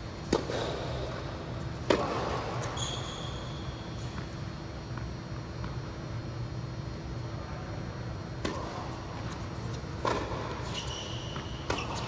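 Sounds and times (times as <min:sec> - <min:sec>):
steady low hum: 0:00.0 - 0:12.0
tennis ball bouncing: 0:00.2 - 0:02.5, 0:08.4 - 0:10.8, 0:11.4 - 0:12.0
tennis racket hitting ball: 0:01.8 - 0:02.5, 0:08.4 - 0:10.8.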